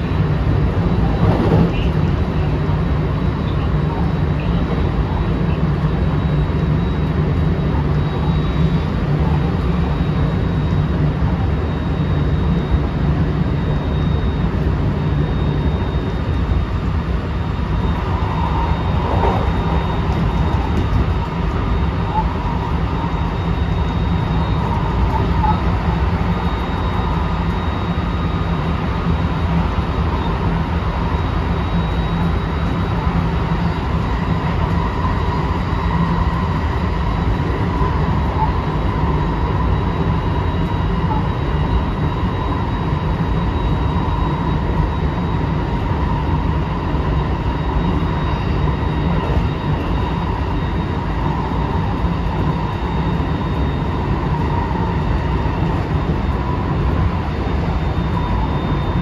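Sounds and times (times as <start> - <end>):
faint motor whine: 0.0 - 59.0
train wheels rumbling on rail: 1.0 - 2.5.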